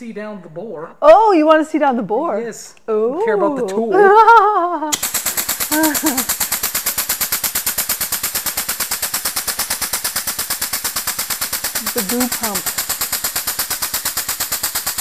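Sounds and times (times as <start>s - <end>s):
air grease gun pumping: 4.9s - 15.0s.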